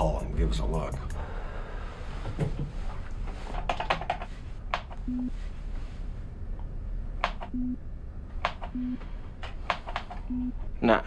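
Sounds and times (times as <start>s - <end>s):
short low electronic beeps: 10.3s - 10.5s.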